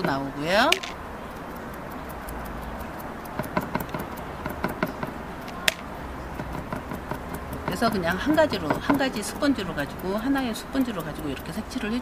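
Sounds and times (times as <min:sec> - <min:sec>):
sponge dabbing on board: 0:06.4 - 0:12.0.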